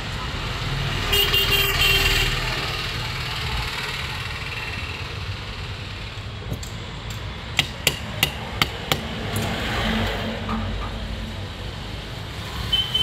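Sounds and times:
hammer tapping on metal: 7.1 - 9.5.

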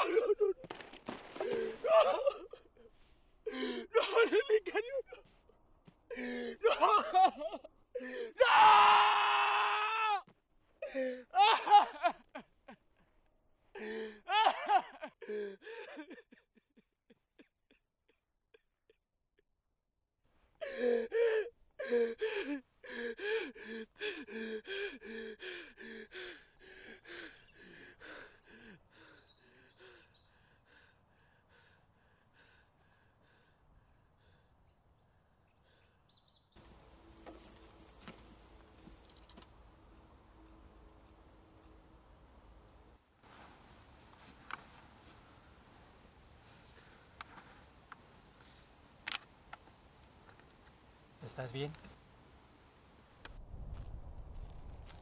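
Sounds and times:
man wailing: 8.4 - 10.2, 11.4 - 12.1, 14.3 - 15.0.

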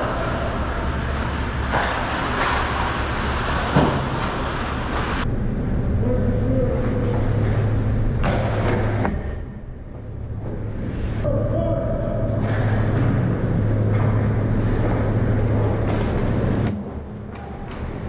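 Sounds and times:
skates scraping ice: 0.0 - 5.3, 12.3 - 18.0
rink low hum: 0.0 - 18.0.

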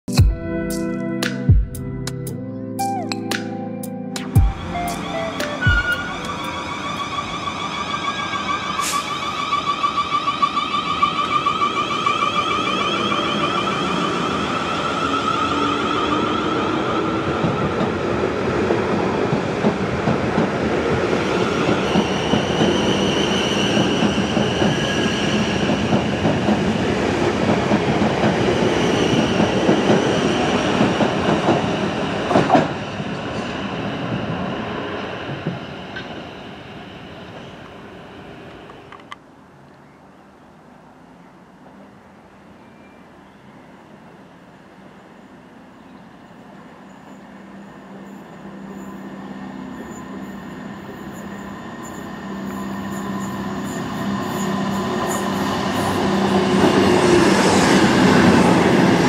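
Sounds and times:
train wheels rumbling on rails: 4.4 - 39.2, 48.3 - 59.0.

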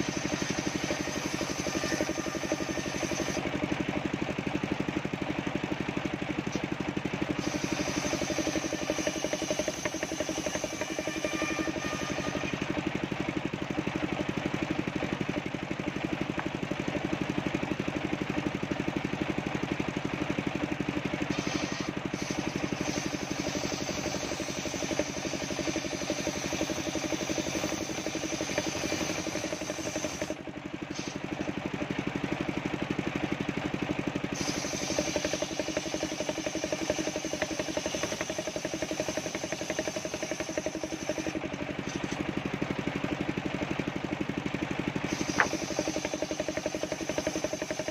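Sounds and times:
saw motor drone: 0.0 - 3.6, 6.5 - 13.3, 21.2 - 31.5, 34.2 - 42.3, 45.0 - 47.9.

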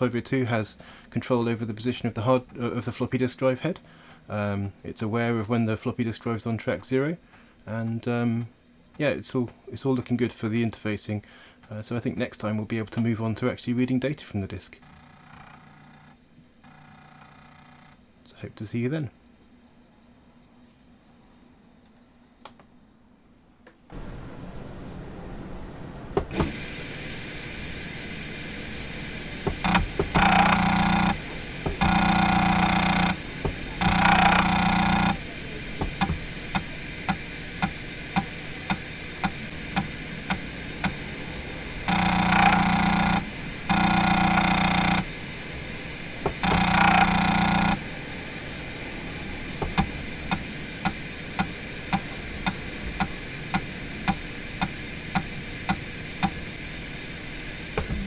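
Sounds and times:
steady background hum: 0.0 - 58.0
floppy drive head buzzing: 14.8 - 18.1, 26.2 - 58.0.

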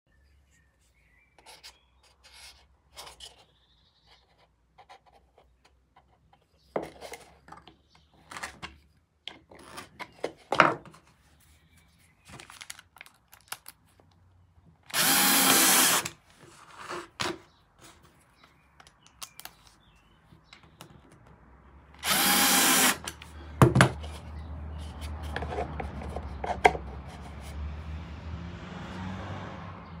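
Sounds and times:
cordless drill driving screws: 14.9 - 16.2, 22.0 - 23.2.

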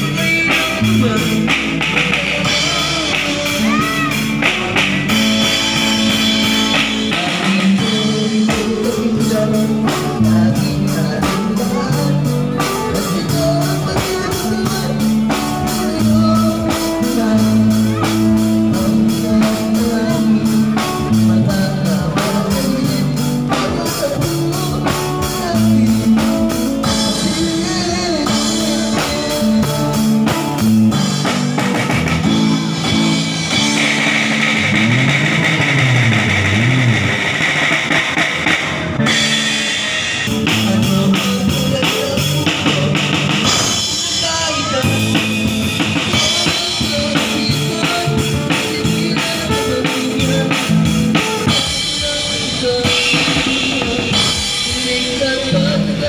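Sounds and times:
drum kit playing: 0.0 - 56.0
rock backing track: 0.0 - 56.0.

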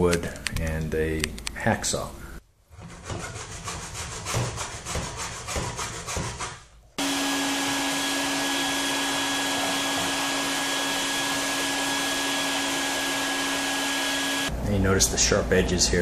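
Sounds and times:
hacksaw cutting metal: 2.8 - 6.7
vacuum cleaner running: 7.0 - 14.5.

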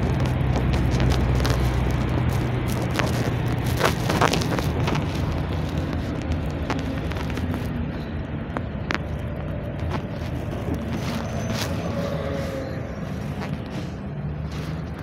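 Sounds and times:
clicks and rattles from vehicle body: 0.0 - 11.8
engine and tyre rumble: 0.0 - 15.0.

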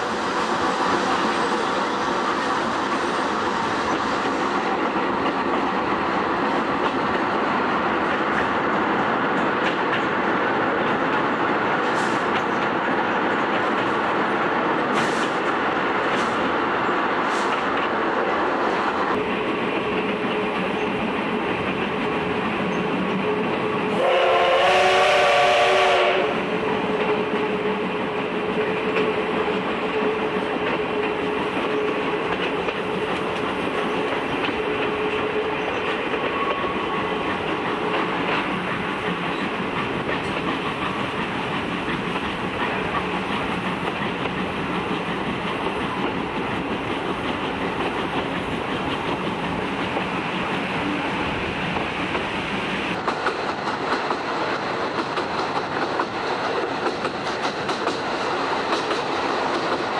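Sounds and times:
train wheels clicking over rails: 0.0 - 59.9
steam whistle: 23.9 - 26.4.

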